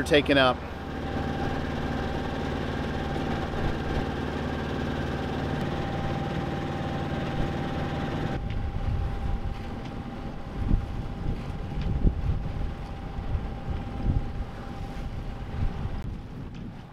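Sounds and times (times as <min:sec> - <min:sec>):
faint steady whine: 0:00.0 - 0:16.0
diesel engine droning: 0:00.0 - 0:16.1
wind on microphone: 0:07.3 - 0:16.9.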